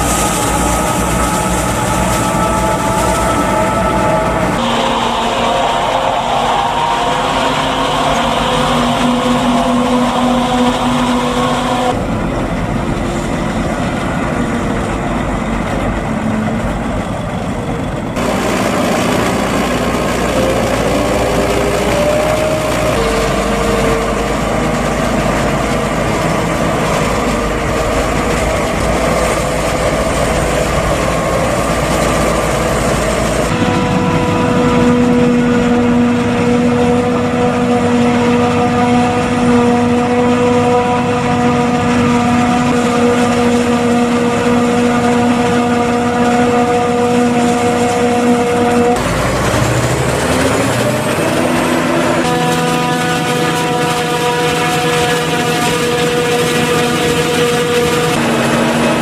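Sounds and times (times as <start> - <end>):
forage harvester chopping corn: 0.0 - 5.2, 18.2 - 59.0
wheel loader diesel engine: 0.0 - 59.0.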